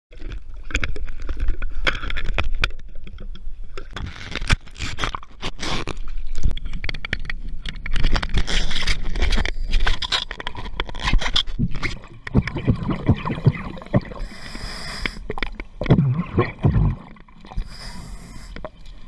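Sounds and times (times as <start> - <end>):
water splashing and sloshing: 0.1 - 19.0
underwater bubbling: 6.0 - 19.0.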